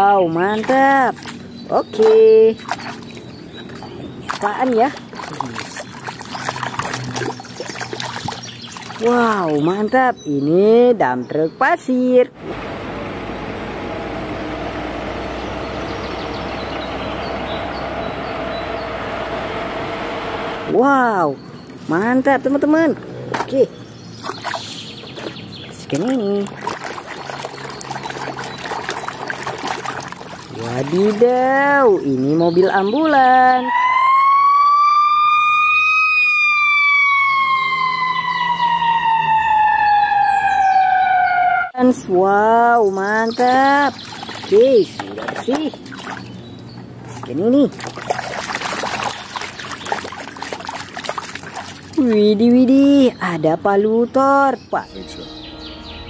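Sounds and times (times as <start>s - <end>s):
truck diesel engine running: 12.3s - 20.8s
ambulance siren wailing: 33.3s - 41.8s.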